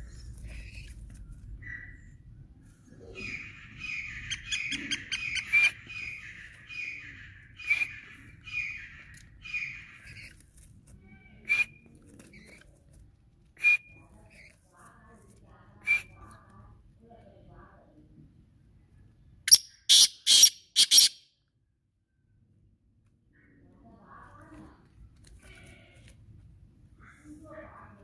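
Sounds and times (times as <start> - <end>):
bird calling harsh notes: 3.1 - 10.3, 19.5 - 21.2.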